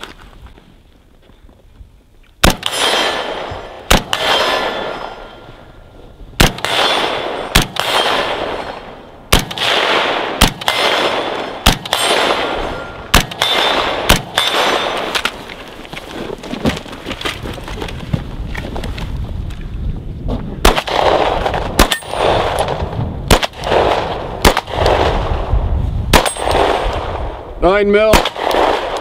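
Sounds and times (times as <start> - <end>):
rifle shots echoing: 2.4 - 5.7, 6.4 - 15.4, 20.6 - 25.5, 26.1 - 29.0.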